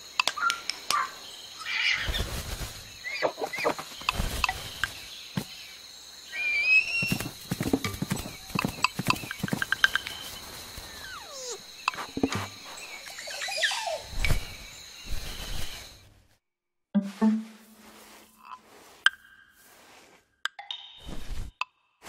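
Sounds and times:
hooves clip-clopping: 0:07.0 - 0:10.4.

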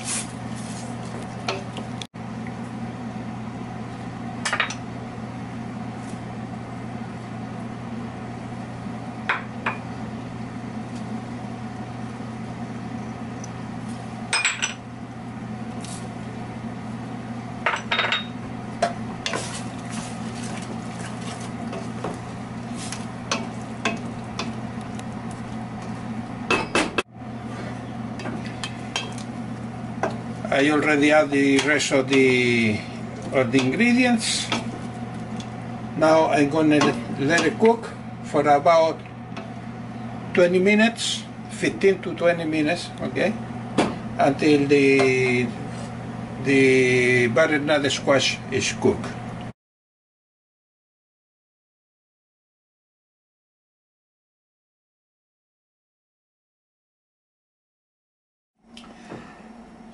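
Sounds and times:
steady low hum: 0:00.0 - 0:49.5
wooden spoon stirring pot: 0:19.2 - 0:24.6.

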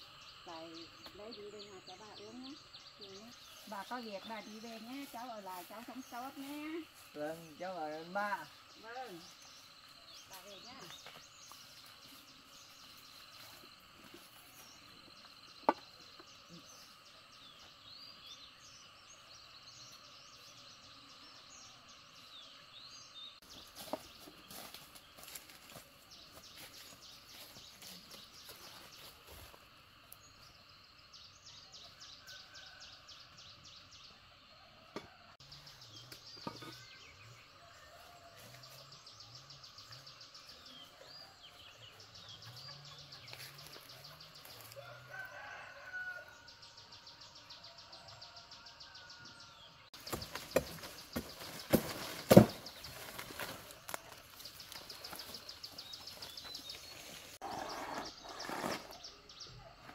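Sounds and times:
palm fronds rustling: 0:50.0 - 0:57.4.

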